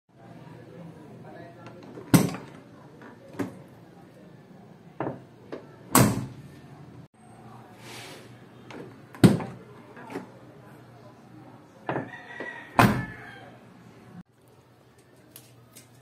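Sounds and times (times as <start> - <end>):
van door slamming shut: 12.8 - 13.0.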